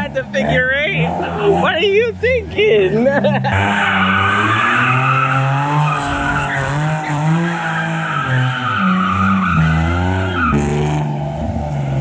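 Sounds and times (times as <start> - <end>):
car engine revving: 0.0 - 12.0
tyres squealing on wet concrete: 3.5 - 10.8.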